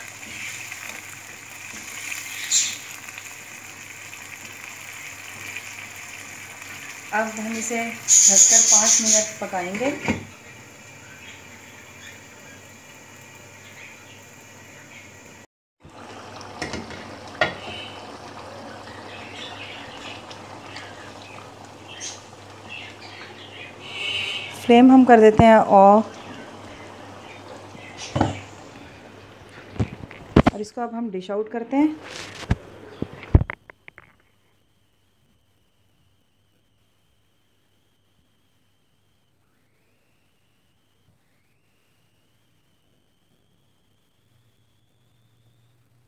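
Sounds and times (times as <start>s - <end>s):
crackles and pops: 0.0s - 8.6s, 26.1s - 30.7s, 32.0s - 46.0s
curry sizzling and bubbling in a pan: 0.0s - 30.6s.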